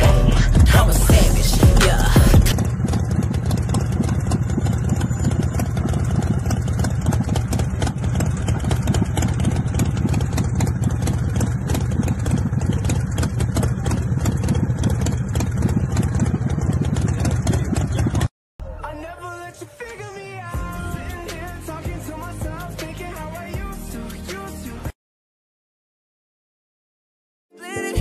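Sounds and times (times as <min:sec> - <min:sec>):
motorcycle engine idling: 0:00.0 - 0:18.3.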